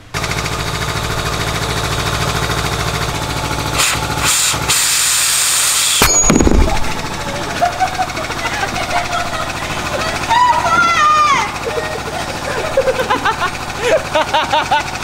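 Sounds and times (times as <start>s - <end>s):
air compressor pulsing: 0.0s - 15.0s
compressed air hissing: 3.8s - 6.0s
low thud: 6.0s - 7.2s.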